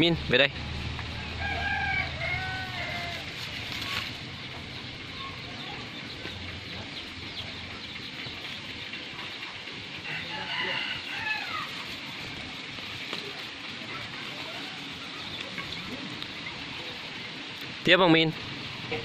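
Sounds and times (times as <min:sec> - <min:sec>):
rooster crowing: 0:01.1 - 0:03.6, 0:10.0 - 0:11.9.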